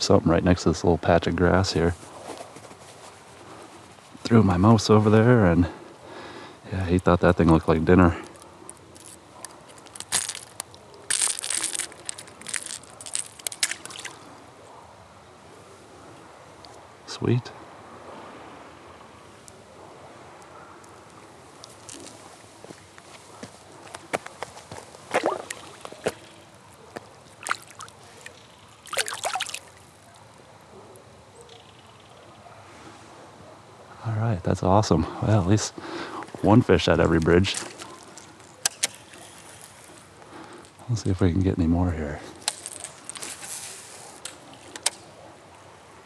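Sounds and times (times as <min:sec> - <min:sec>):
faint lapping water: 0:08.2 - 0:23.9, 0:25.0 - 0:31.5
fish splashing in water: 0:09.0 - 0:14.4, 0:25.1 - 0:26.3, 0:27.1 - 0:30.0.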